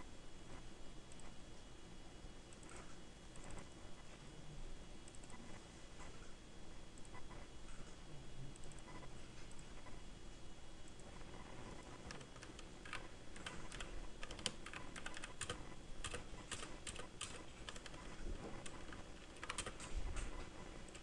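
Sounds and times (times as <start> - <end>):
keyboard typing: 11.8 - 21.0.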